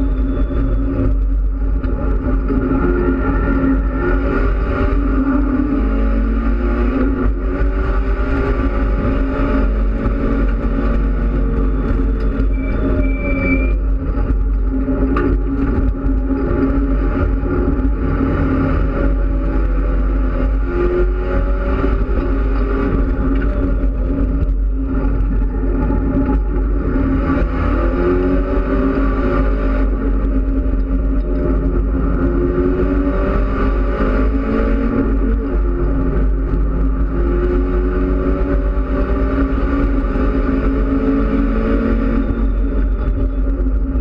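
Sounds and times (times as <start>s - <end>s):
race car engine accelerating: 0.0s - 44.0s
road and wind noise: 0.0s - 44.0s.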